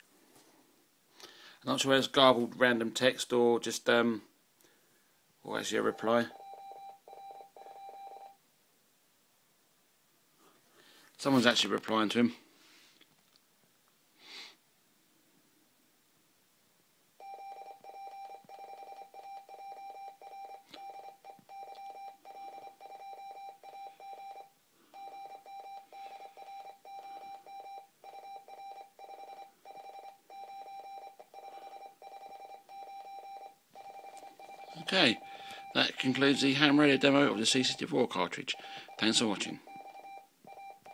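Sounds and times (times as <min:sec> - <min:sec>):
morse code beeps from radio: 0:05.9 - 0:08.4, 0:17.2 - 0:37.9, 0:38.5 - 0:40.9.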